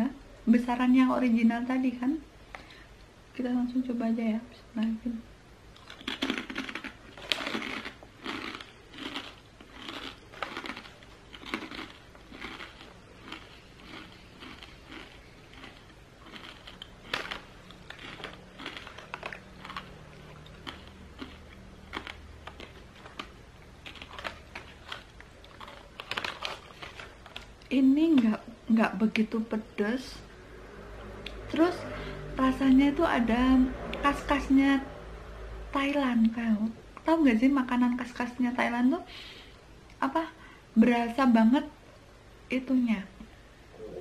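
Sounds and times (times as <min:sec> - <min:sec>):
crispy chicken skin crunching: 0:05.8 - 0:27.5.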